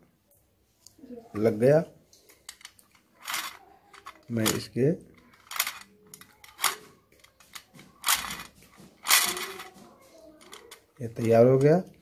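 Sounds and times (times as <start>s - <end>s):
metallic scrapes and rustles: 2.5s - 11.7s.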